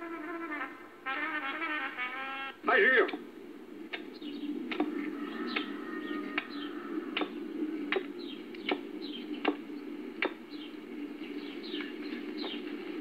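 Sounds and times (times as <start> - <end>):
low hum: 0.0 - 13.0
birds chirping: 0.5 - 13.0.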